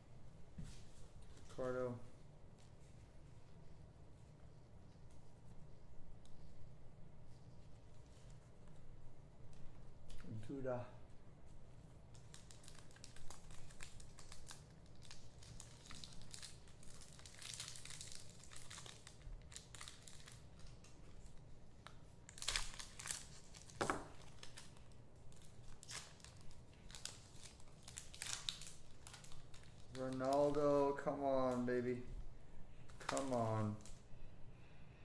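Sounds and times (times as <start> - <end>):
packaging crinkling and rustling: 11.7 - 32.0, 32.8 - 34.0.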